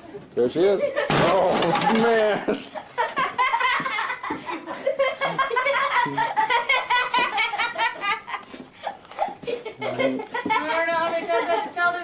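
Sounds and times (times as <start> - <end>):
person laughing hard: 2.2 - 8.6.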